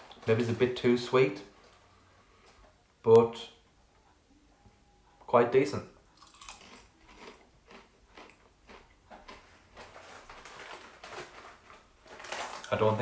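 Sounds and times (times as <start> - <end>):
person chewing crisps: 6.1 - 12.8.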